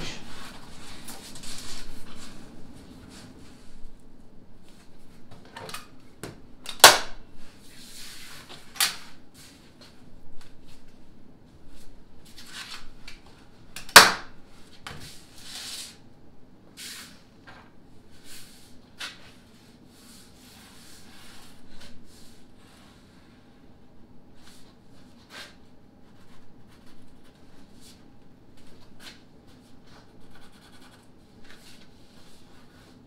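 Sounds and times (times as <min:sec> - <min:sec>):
pencil scratching: 0:30.2 - 0:31.1.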